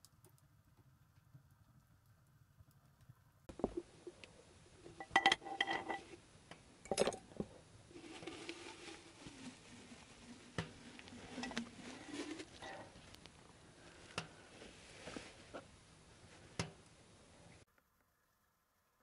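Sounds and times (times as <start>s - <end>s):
metal cookware clinking: 5.0s - 6.0s.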